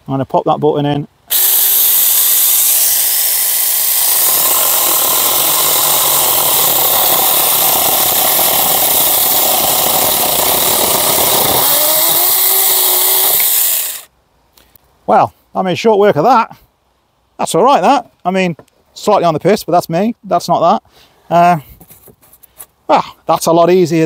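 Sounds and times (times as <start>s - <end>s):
electric chainsaw cutting wood: 1.3s - 14.1s.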